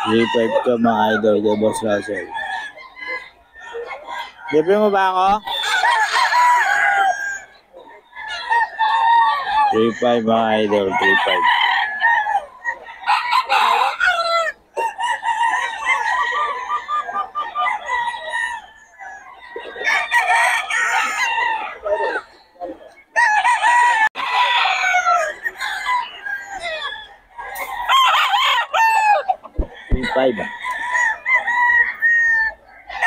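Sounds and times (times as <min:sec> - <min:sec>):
roosters crowing: 0:00.0 - 0:33.0.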